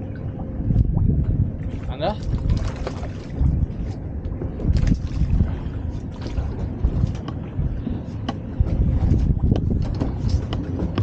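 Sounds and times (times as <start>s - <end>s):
water slapping boat hull: 0.0s - 11.0s
wind buffeting microphone: 0.0s - 11.0s
fishing gear clicking and knocking: 9.5s - 11.0s.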